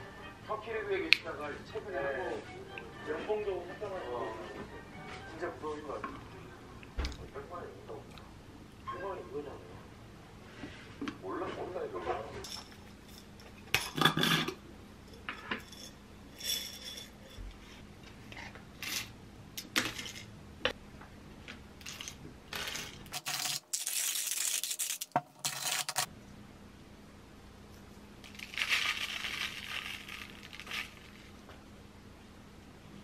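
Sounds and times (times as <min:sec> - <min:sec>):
hand grinder crunching beans: 0:21.8 - 0:26.1, 0:28.2 - 0:31.4
coffee grounds pouring: 0:28.2 - 0:31.4
coffee beans clinking in jar: 0:28.3 - 0:31.3.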